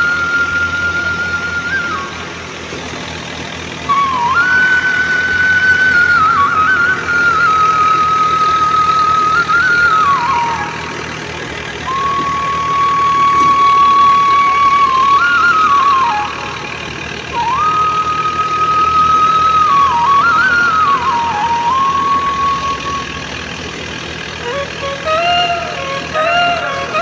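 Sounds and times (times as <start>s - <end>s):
thresher machine running: 0.0s - 27.0s.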